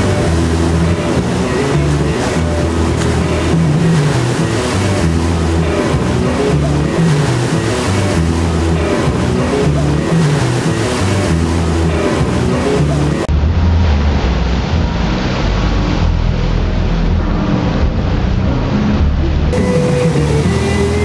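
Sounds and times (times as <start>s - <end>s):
background music: 0.0s - 13.3s, 18.6s - 21.0s
boat engine: 0.0s - 21.0s
boat wake rushing: 0.0s - 21.0s.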